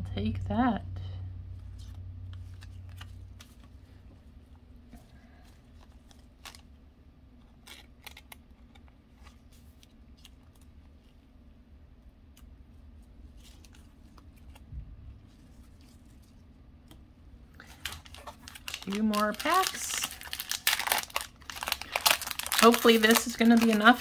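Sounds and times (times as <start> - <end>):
low steady hum: 0.0 - 24.0
trading cards clicking and rustling: 1.6 - 3.8, 7.4 - 10.8, 16.9 - 24.0.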